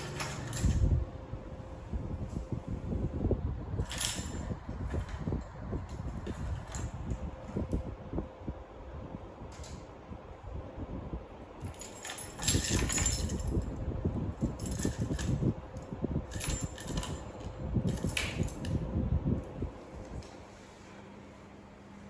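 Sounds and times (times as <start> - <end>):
metal key clinking and rattling: 0.0 - 1.0, 3.8 - 7.3, 11.6 - 18.8.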